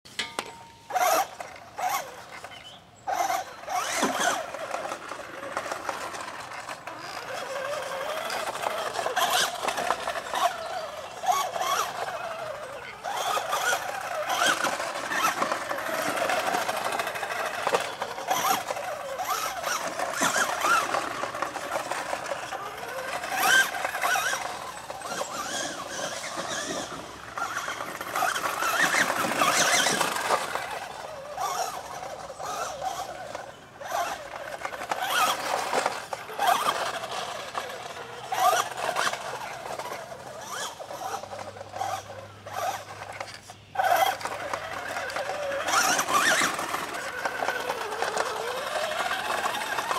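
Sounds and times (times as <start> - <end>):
rc truck electric motor whine: 0.2 - 49.9.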